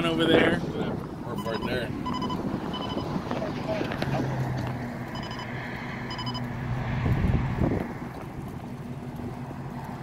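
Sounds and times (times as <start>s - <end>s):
low engine hum: 0.0s - 10.0s
road and wind noise: 0.0s - 10.0s
short electronic beeps: 1.4s - 3.1s, 5.1s - 6.4s.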